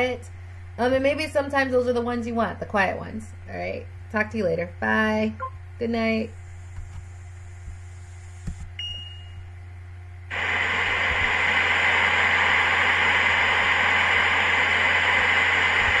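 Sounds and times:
low electrical hum: 0.0 - 16.0
static hiss: 10.3 - 16.0.

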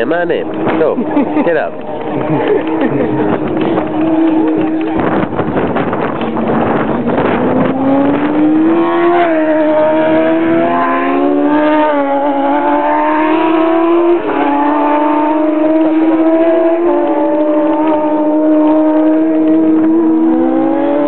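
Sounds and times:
motorcycle engine revving: 0.4 - 21.0.

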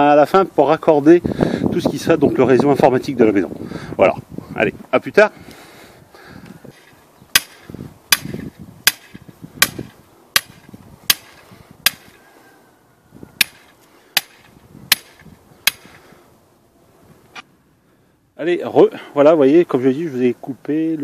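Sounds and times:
hammer striking steel stake: 7.3 - 12.2, 13.4 - 16.0.

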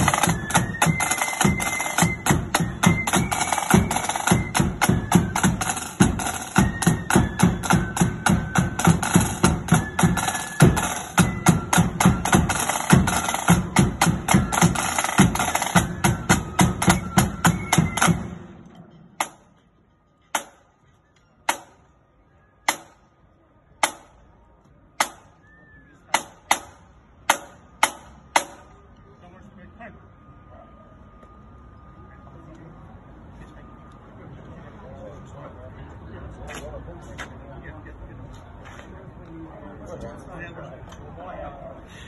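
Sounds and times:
marching drums parade beat: 0.0 - 19.6, 26.1 - 28.7.

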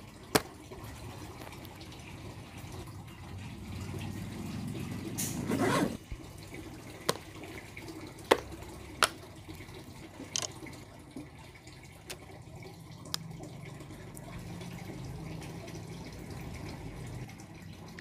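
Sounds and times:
zipper pulled open: 5.2 - 6.0.

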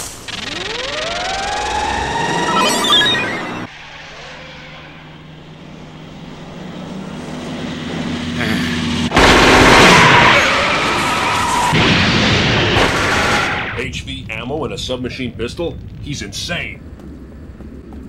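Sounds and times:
truck engine drone: 0.0 - 18.0
siren: 0.3 - 8.2.

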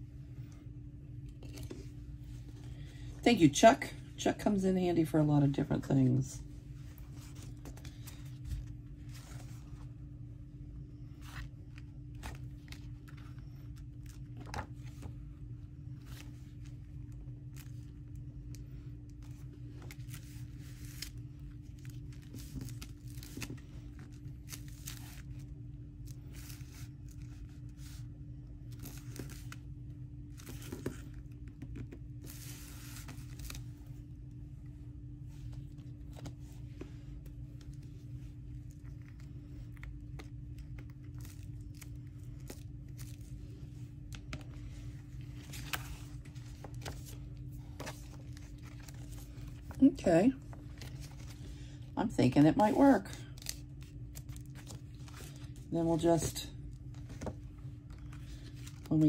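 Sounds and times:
steady low hum: 0.0 - 59.0.

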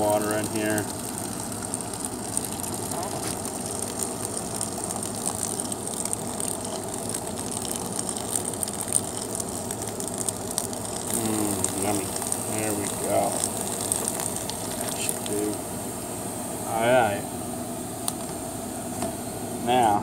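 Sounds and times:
water pouring into plastic tub: 0.0 - 15.6.

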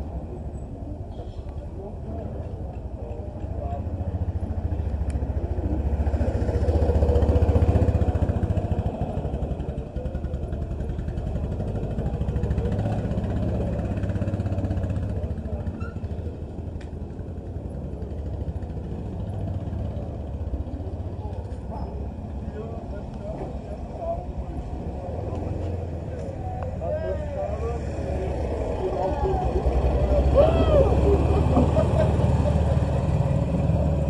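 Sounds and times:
scooter engine running: 3.9 - 15.7, 27.5 - 34.0.

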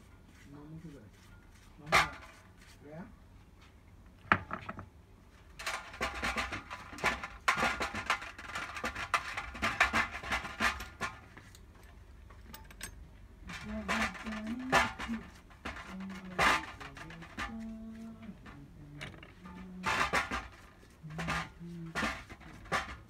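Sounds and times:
metal parts clinking in a tray: 12.4 - 17.6.

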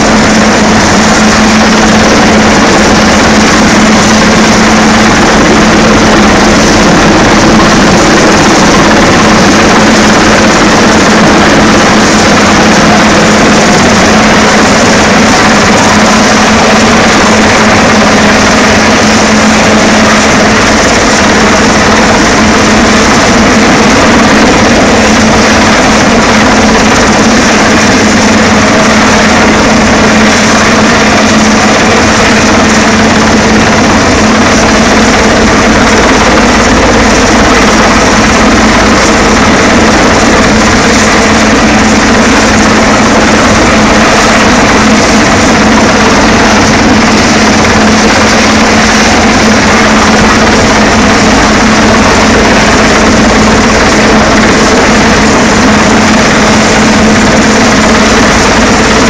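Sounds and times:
helicopter hovering overhead: 0.0 - 59.0.

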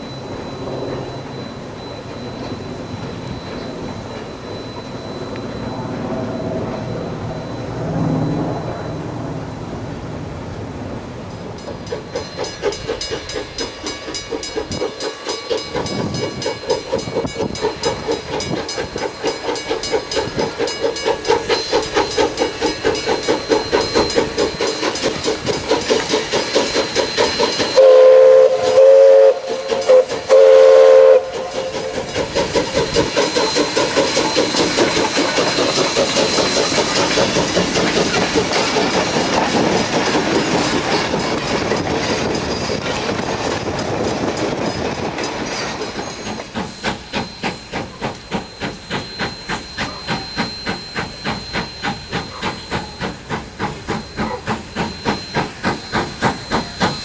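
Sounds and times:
steam locomotive exhaust chuffing: 11.0 - 57.0
steam whistle blasts: 27.7 - 32.1.

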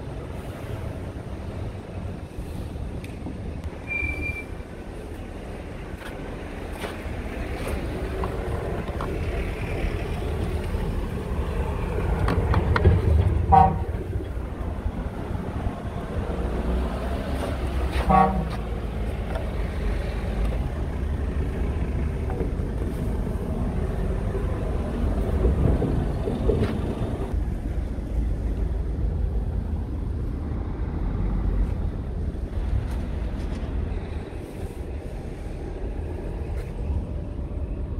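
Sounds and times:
horn toots: 13.4 - 14.0, 17.9 - 18.6
diesel engine idling: 17.7 - 29.7.

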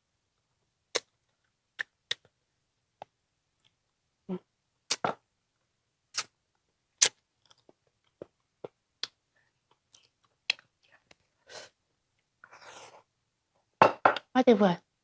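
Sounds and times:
wet mouth clicks and smacks: 1.8 - 2.3, 6.1 - 6.3, 7.0 - 7.8, 9.0 - 10.7
person chewing: 7.0 - 11.0.

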